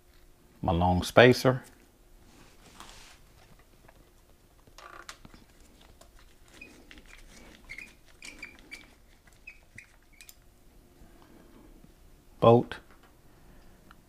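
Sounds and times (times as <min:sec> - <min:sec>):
short high squeaks: 0:06.5 - 0:10.4.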